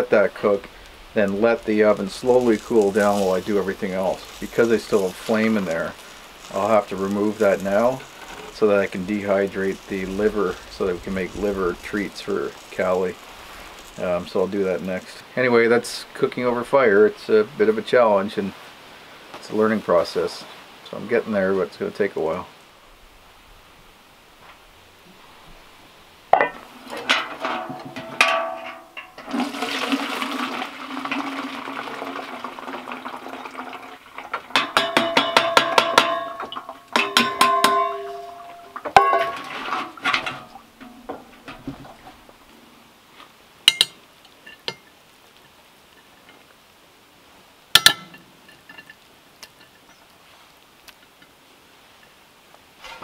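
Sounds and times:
water pouring into metal pail: 0.4 - 14.1, 27.0 - 42.1
pot clanking against pail: 26.3 - 30.2, 34.2 - 42.2.

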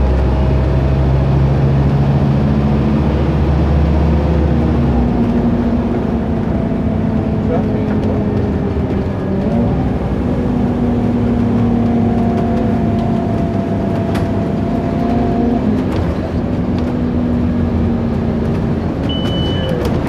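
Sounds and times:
bus engine drone with whine: 0.0 - 20.0
road rumble: 0.0 - 20.0
short high beep: 19.1 - 19.8.

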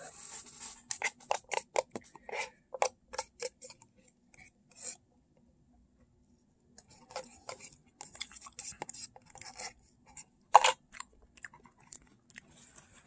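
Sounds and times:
plastic fork scraping paper cup: 0.0 - 5.0, 6.8 - 10.8.

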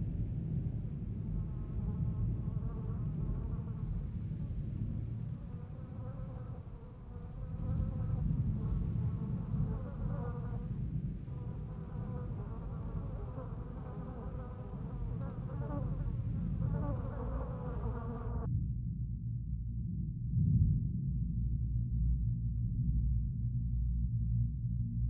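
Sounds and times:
low rumble: 0.0 - 25.0
insect-like buzzing: 5.2 - 18.5.

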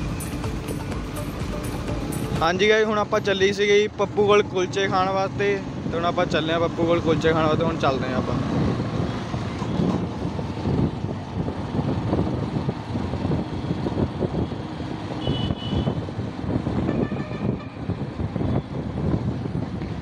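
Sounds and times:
vehicle engine and road noise: 0.0 - 20.0
wind rumbling on microphone: 5.2 - 20.0.

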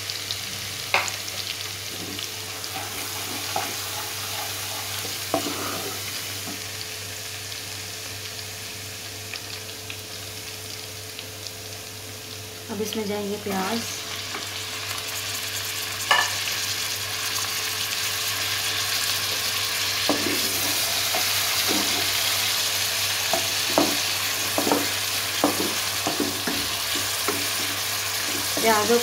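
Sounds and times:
onions sizzling in hot oil: 0.0 - 29.0
wooden spatula scraping pan: 1.9 - 6.2, 23.4 - 29.0.

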